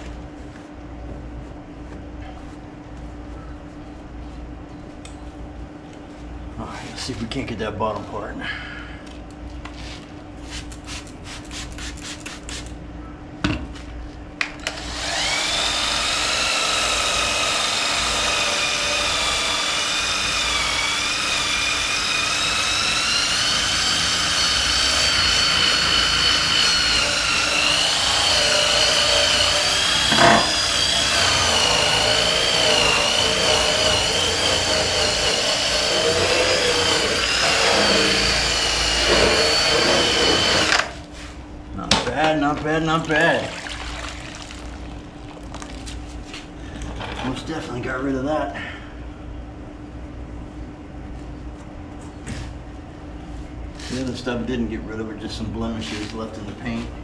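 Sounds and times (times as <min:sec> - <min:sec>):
cordless drill whining: 0:14.6 - 0:41.0.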